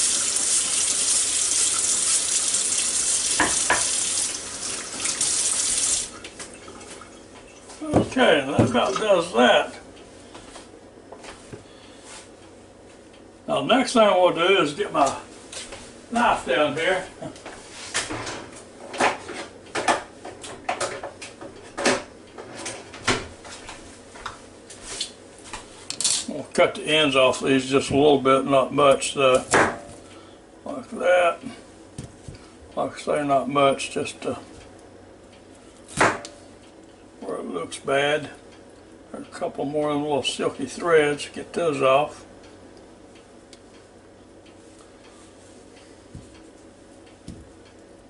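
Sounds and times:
tap running into metal sink: 0:03.3 - 0:04.1.

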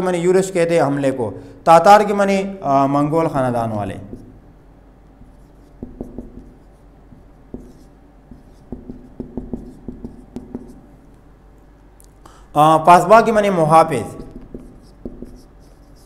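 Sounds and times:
marker scratching on whiteboard: 0:04.0 - 0:04.4, 0:05.2 - 0:11.1, 0:14.0 - 0:16.0.

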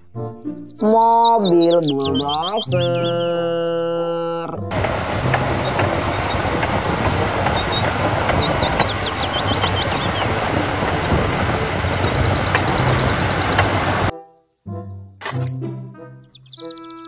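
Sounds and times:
small birds chirping: 0:00.0 - 0:03.6, 0:04.8 - 0:14.6, 0:16.0 - 0:17.0
diesel machinery droning: 0:04.7 - 0:14.1.

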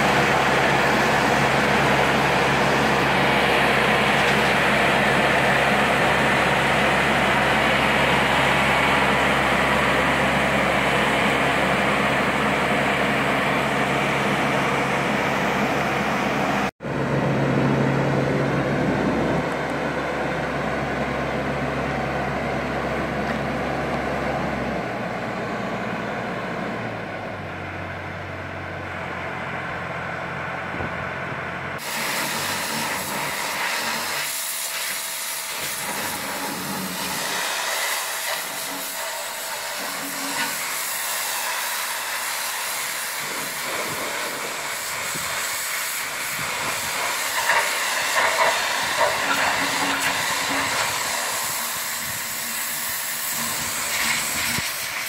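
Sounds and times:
hoist engine running: 0:00.0 - 0:55.0
pressure washer spraying hull: 0:31.8 - 0:55.0.

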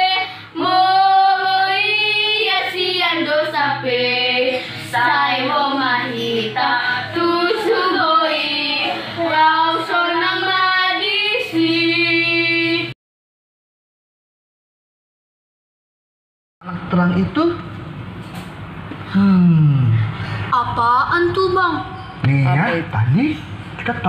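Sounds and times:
children singing: 0:00.0 - 0:12.9.

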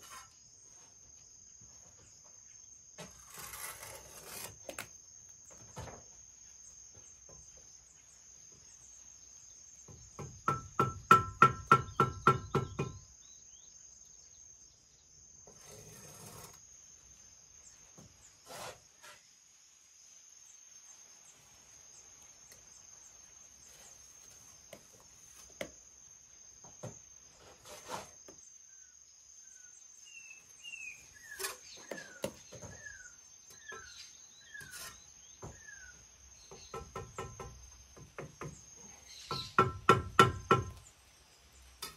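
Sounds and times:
insect buzzing: 0:11.9 - 0:41.9
bird chirps: 0:28.7 - 0:37.0, 0:38.4 - 0:40.9.

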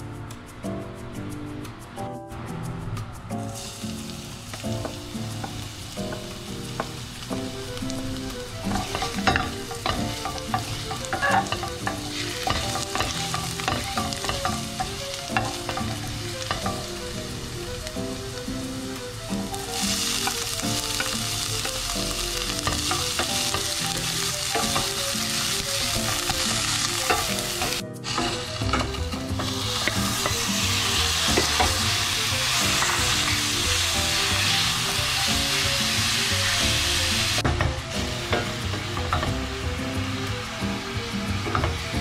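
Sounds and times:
meat sizzling in a pan: 0:03.5 - 0:42.0
onions sizzling in hot oil: 0:03.5 - 0:42.0
wooden spatula scraping pan: 0:10.6 - 0:14.6.

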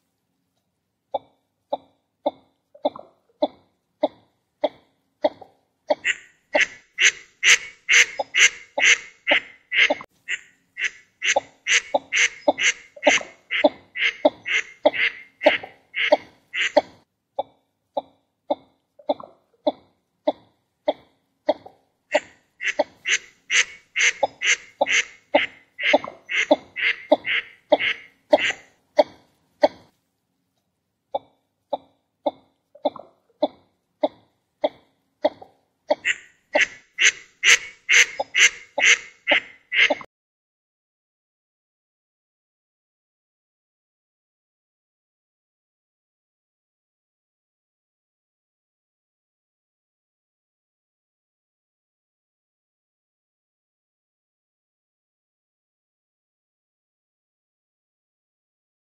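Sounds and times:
duck nasal calls: 0:05.9 - 0:16.9, 0:22.1 - 0:28.7, 0:35.9 - 0:40.1.

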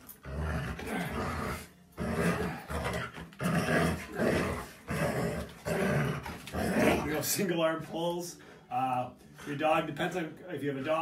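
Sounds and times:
dog growling: 0:00.0 - 0:07.2.

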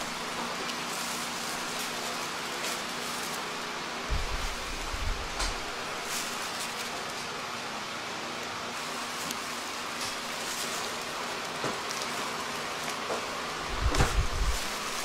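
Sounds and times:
steady hiss of background noise: 0:00.0 - 0:15.0
low thumps: 0:13.7 - 0:14.6.

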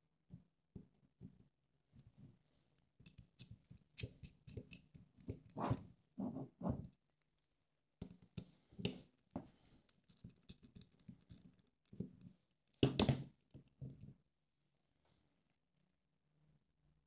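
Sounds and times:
clicks and taps of small screws: 0:09.9 - 0:12.1.

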